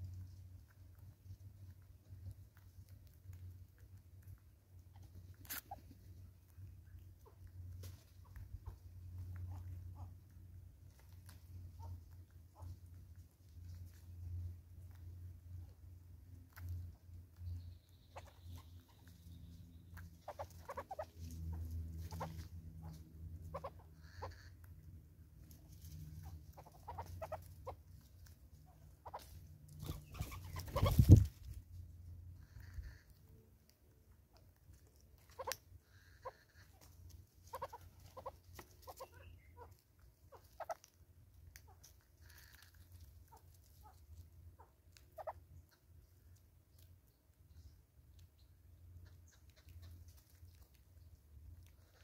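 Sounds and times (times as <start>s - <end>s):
soft bird clucking: 4.1s - 14.0s, 16.5s - 52.0s
hornbills clucking: 20.0s - 24.7s, 26.2s - 27.8s.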